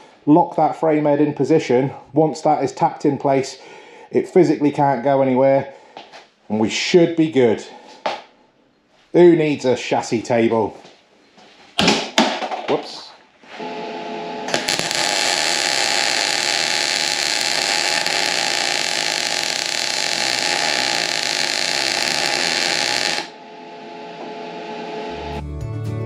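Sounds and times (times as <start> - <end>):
welding arc hissing: 14.5 - 23.4.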